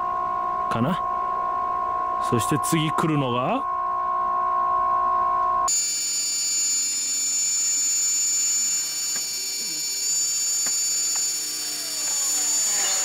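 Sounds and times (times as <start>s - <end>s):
level crossing alarm ringing: 5.7s - 13.0s.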